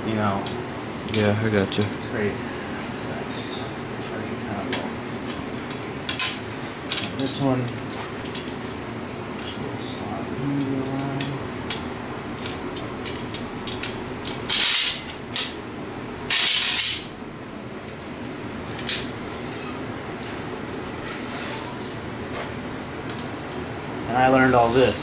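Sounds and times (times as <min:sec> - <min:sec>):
metal sliding rasps: 0:11.0 - 0:15.6.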